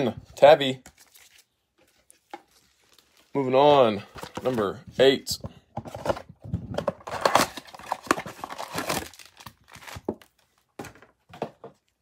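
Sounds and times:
plastic shrink-wrap tearing: 7.2 - 10.0.

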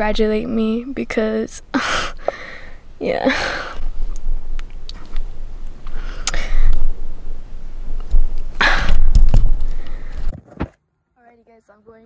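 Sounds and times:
low rumble: 0.0 - 10.3
handling noise on phone microphone: 6.7 - 10.8.

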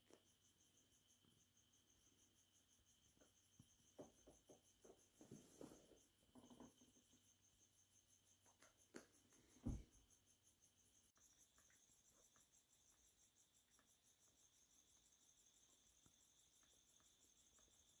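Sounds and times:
cat landing thump: 9.6 - 9.9
faint ticks: 11.1 - 18.0.

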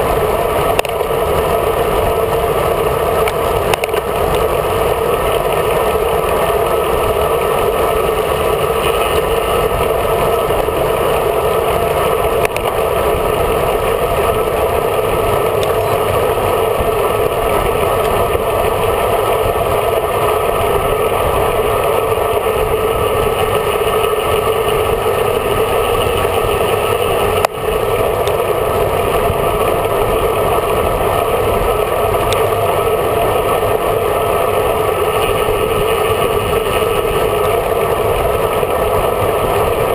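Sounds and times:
wind and road noise: 0.0 - 39.9.

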